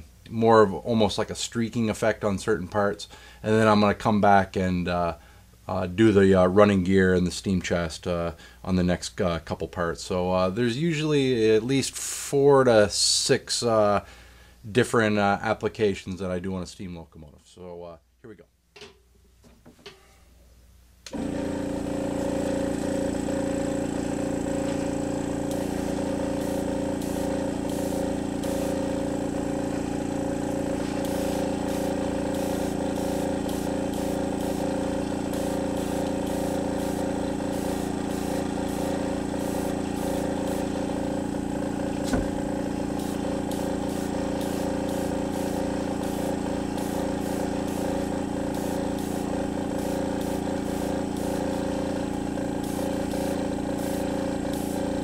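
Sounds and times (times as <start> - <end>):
air compressor motor hum: 21.1 - 55.0
airbrush hissing: 23.6 - 55.0.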